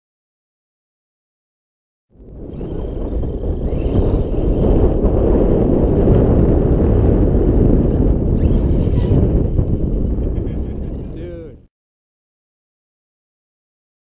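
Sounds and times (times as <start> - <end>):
electric motors whining: 2.2 - 11.5
low rumble: 2.2 - 11.6.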